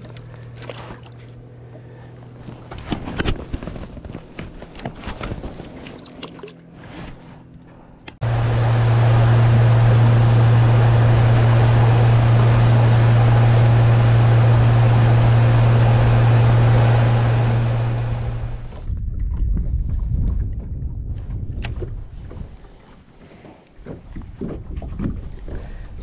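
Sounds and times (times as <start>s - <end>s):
outboard motor running: 8.2s - 18.9s
low rumble: 8.2s - 20.4s.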